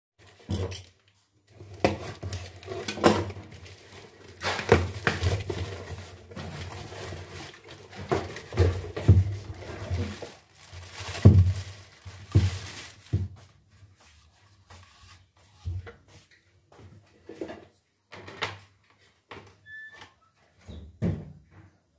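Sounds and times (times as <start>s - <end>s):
plastic bag crinkling: 1.6s - 13.4s
knocks and thumps: 7.9s - 9.6s, 11.1s - 13.4s, 21.0s - 21.7s.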